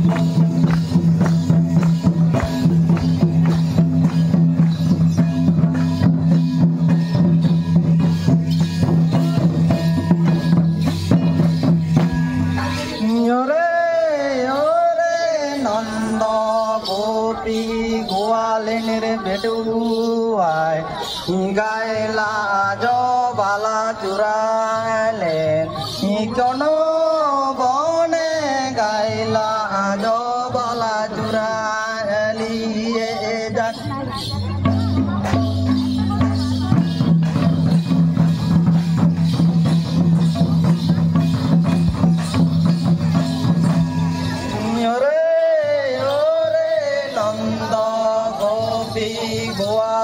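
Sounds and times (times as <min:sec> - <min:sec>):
barrel drum beating: 0:00.0 - 0:12.8, 0:33.9 - 0:44.8
men singing in chanting style: 0:12.2 - 0:37.4, 0:43.1 - 0:50.0.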